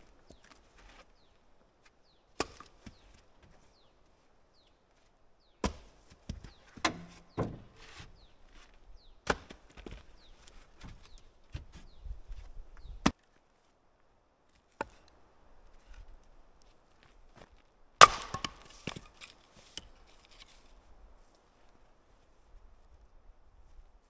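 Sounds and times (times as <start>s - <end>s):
firewood clacking onto pile: 6.8s - 7.8s, 18.0s - 20.5s.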